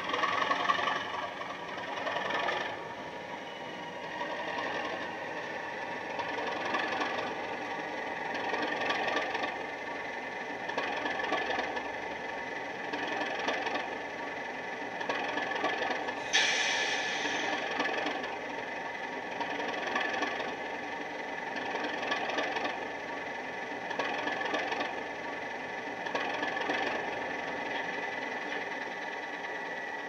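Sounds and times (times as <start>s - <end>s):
model diesel engine sound: 0.0s - 30.0s
burst of hiss: 16.2s - 17.6s.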